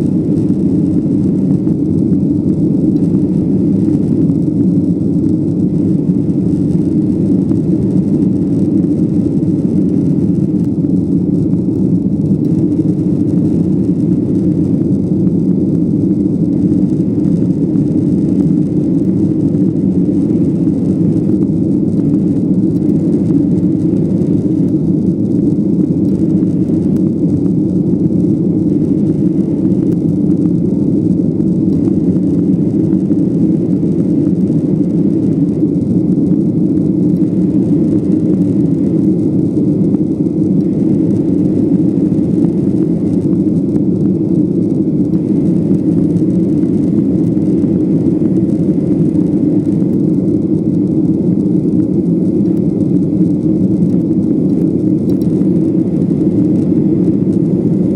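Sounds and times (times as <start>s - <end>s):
airflow over fuselage: 0.0s - 57.9s
jet engines droning: 0.0s - 57.9s.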